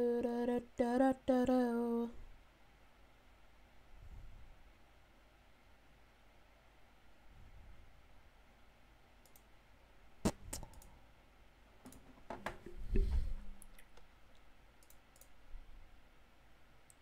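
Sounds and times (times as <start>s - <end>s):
mouse and keyboard clicks: 11.8s - 12.8s.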